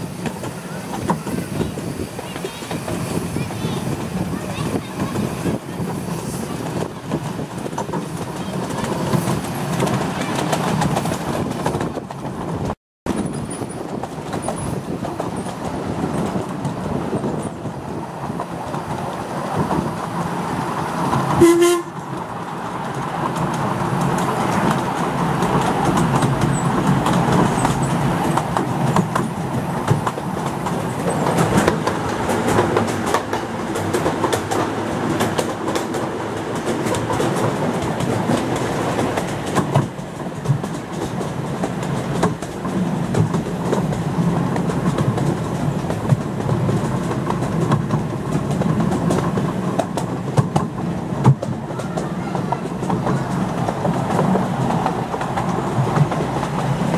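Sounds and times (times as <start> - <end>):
wheels rumbling on track: 0.0 - 56.9
clicks over rail joints: 21.0 - 56.9.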